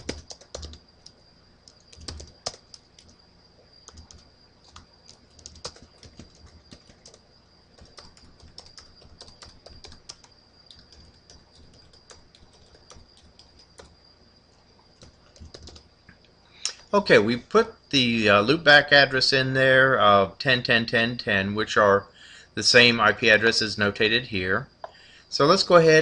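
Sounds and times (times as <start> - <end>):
typing on keyboard: 0.0 - 3.2, 3.8 - 7.2, 7.8 - 14.0, 15.0 - 15.9
faint high-pitched whine: 0.0 - 26.0.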